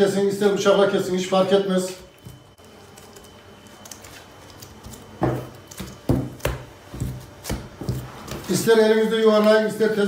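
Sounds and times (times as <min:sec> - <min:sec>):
dough thumping on wood: 0:05.2 - 0:08.6.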